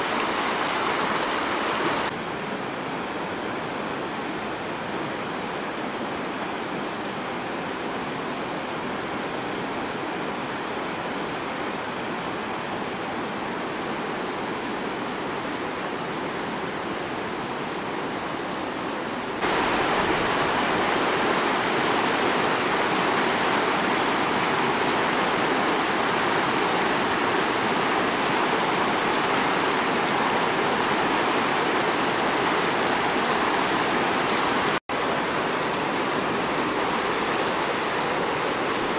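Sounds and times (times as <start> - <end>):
river rushing over boulders: 0.0 - 38.9.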